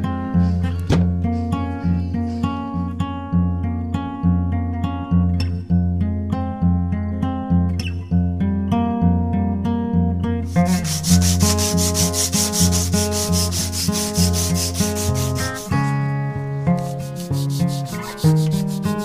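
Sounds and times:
acoustic guitar music: 0:00.0 - 0:19.0
sandpaper rasping on wood: 0:10.5 - 0:16.0, 0:16.8 - 0:19.0.

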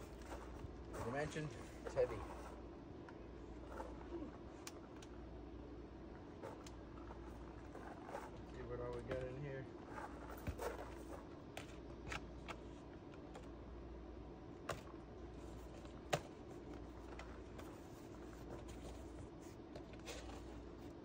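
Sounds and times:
faint low hum: 0:00.0 - 0:21.0
boxes knocking and rustling: 0:07.1 - 0:12.3.

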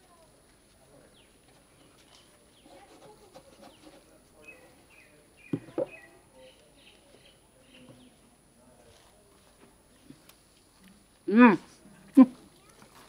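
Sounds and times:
birds chirping: 0:03.6 - 0:08.3.

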